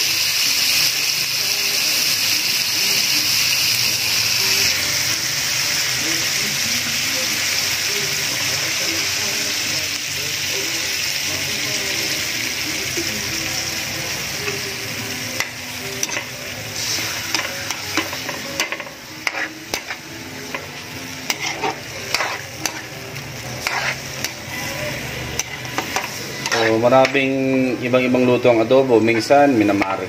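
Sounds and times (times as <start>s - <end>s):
chicken sizzling in a wok: 0.0s - 30.0s
spatula scraping a pan: 15.4s - 27.3s.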